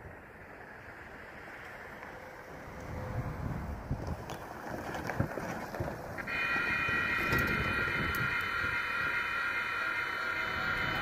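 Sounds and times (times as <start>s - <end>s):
car rumbling over crossing: 0.0s - 11.0s
wind on microphone: 2.7s - 11.0s
crossing warning bell ringing: 6.2s - 11.0s.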